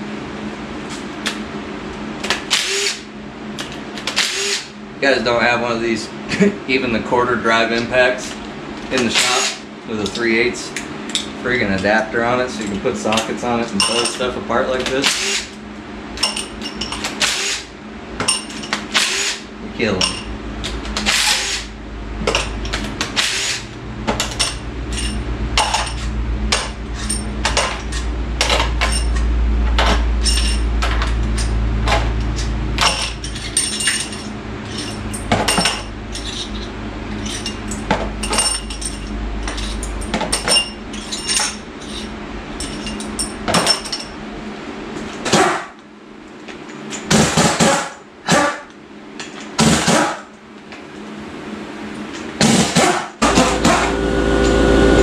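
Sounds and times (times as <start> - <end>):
low steady hum: 0.0 - 47.0
impact driver bursts: 2.5 - 3.1, 4.1 - 4.7, 15.0 - 15.5, 17.1 - 17.7, 18.9 - 19.5, 21.0 - 21.7, 23.2 - 23.6
metal clinks and clatter: 24.2 - 29.3, 30.2 - 44.2.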